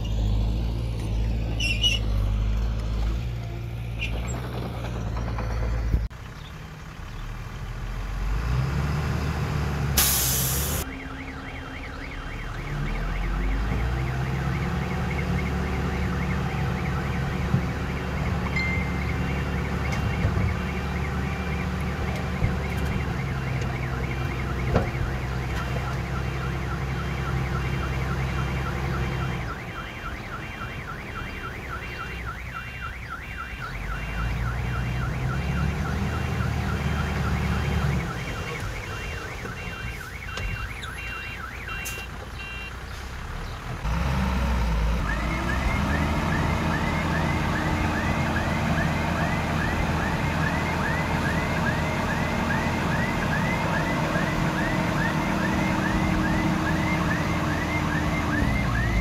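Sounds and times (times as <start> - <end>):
bulldozer diesel engine: 0.0 - 59.0
high squeaking and chirping: 1.5 - 2.2.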